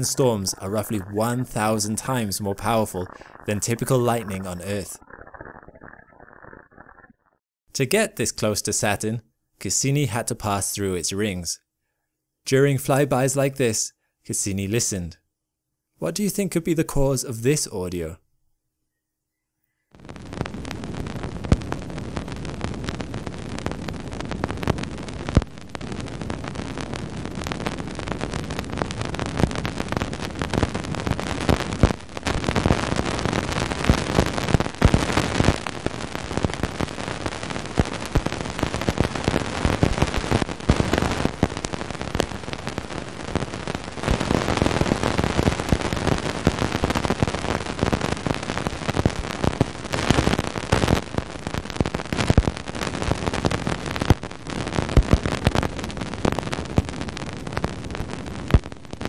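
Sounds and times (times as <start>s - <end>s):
dense crackle of impacts: 0.0s - 7.4s, 20.0s - 59.0s.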